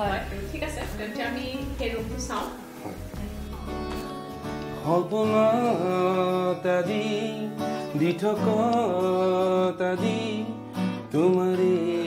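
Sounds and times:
acoustic guitar: 0.0s - 12.0s
man singing: 4.8s - 12.0s.

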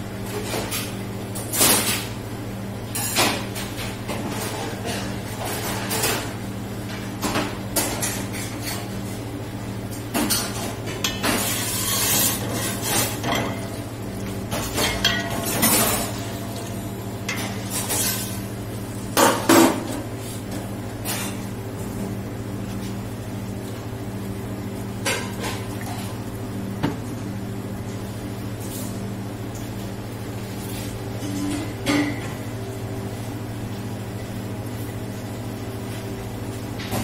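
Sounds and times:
metal ladle scraping in pot: 11.4s - 13.2s.

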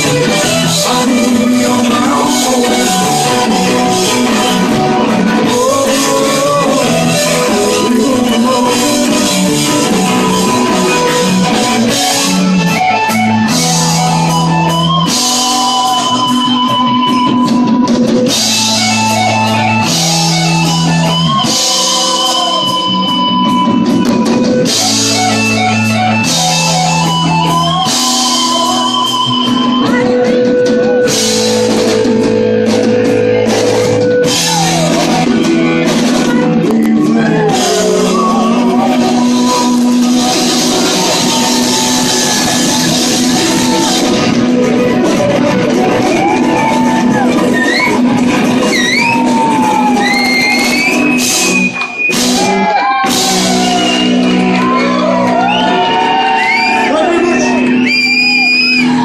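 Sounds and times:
person singing: 0.0s - 12.7s, 26.3s - 50.6s
rock band playing loudly: 0.0s - 59.0s.

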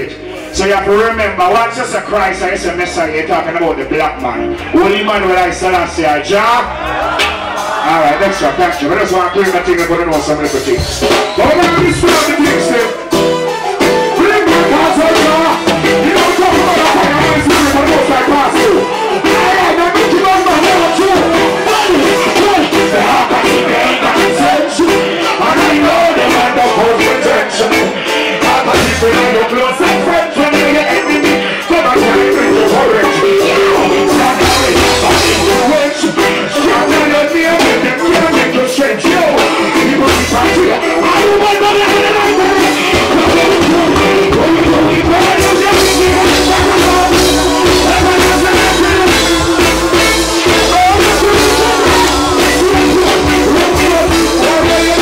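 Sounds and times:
bass line: 0.0s - 55.0s
live reggae band: 0.0s - 55.0s
man singing into microphone: 10.6s - 13.1s, 14.0s - 55.0s.

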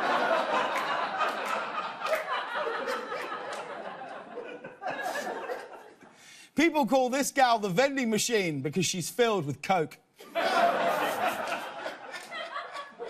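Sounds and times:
studio audience laughing: 0.0s - 6.1s, 10.2s - 13.0s.

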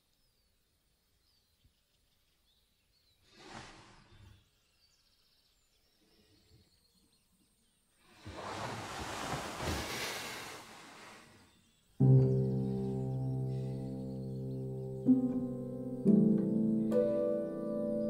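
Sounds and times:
bedding rustling: 8.1s - 11.4s.

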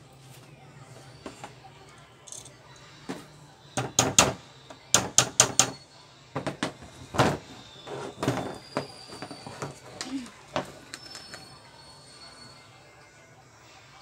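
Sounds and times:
hammer knocking on motor: 3.8s - 5.8s.

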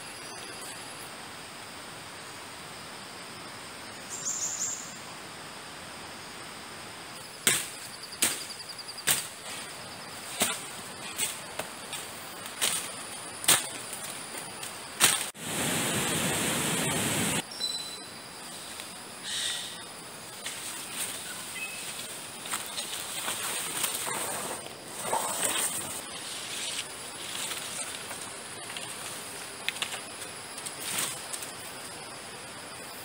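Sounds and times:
insects trilling: 0.0s - 33.0s
footsteps on dry leaves and twigs: 7.5s - 15.4s, 20.4s - 31.7s.

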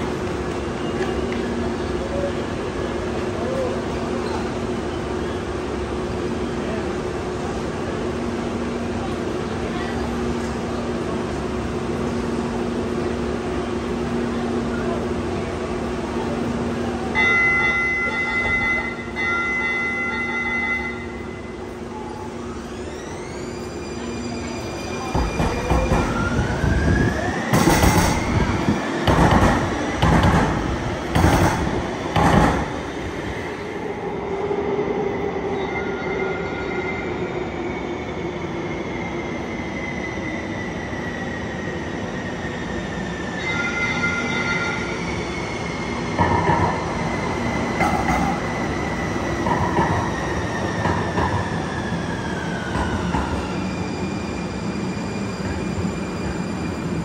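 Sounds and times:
train clunks: 17.2s - 21.0s, 25.0s - 26.6s, 27.5s - 33.2s, 46.1s - 51.8s, 52.6s - 53.6s.

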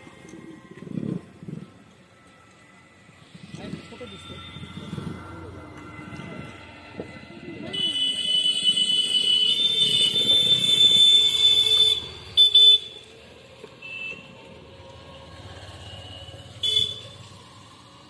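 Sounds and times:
vehicle horn honking: 7.7s - 13.0s, 13.8s - 14.3s, 16.5s - 17.2s.

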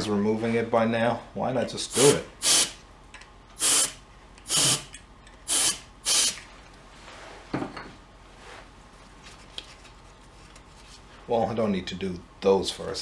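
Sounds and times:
aerosol spray hissing: 1.9s - 2.8s, 3.6s - 4.9s, 5.5s - 6.4s.

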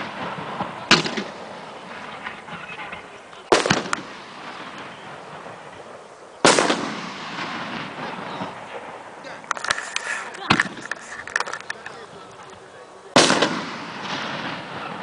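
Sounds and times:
bang echo: 0.0s - 9.5s, 13.2s - 15.0s
firework shells banging: 0.0s - 12.6s.

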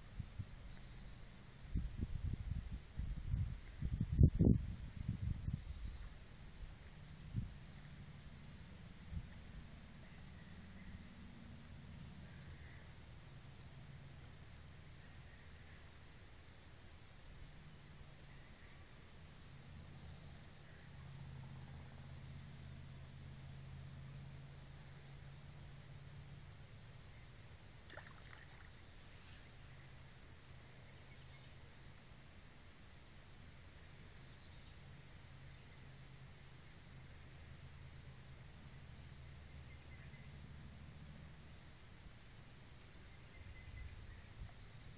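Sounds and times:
insect chirping in pulses: 0.0s - 36.1s.

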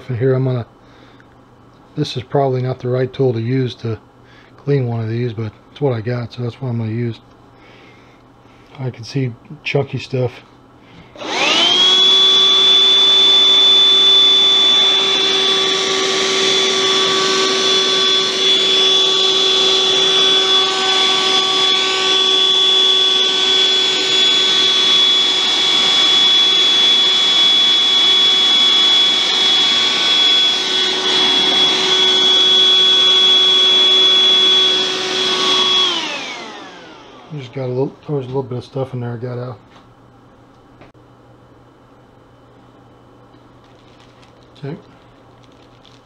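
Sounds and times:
handheld vacuum whining: 11.2s - 37.6s.

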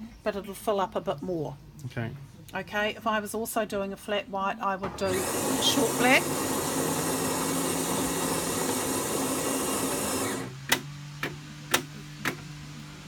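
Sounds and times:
coffee grinder grinding: 5.0s - 10.6s.

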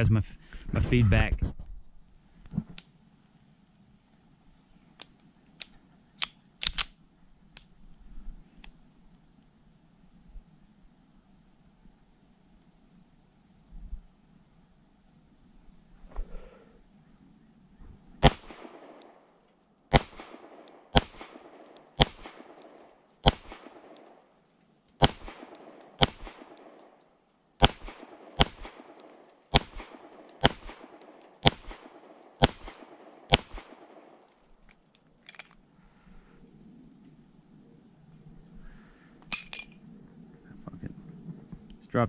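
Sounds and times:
pistol shots with echo: 18.2s - 19.2s, 19.9s - 24.2s, 25.0s - 27.0s, 27.6s - 34.2s.

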